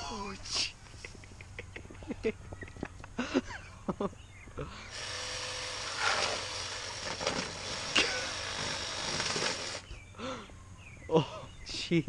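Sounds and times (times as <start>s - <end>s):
handheld power tool whirring: 4.9s - 9.9s.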